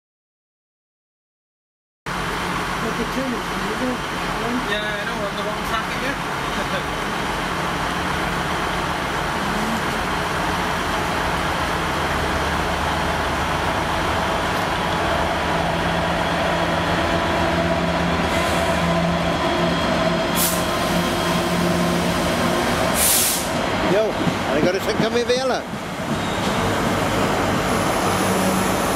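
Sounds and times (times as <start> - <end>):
diesel locomotive engine running: 2.1 - 28.9
sharp hisses: 20.4 - 20.9, 22.9 - 23.6.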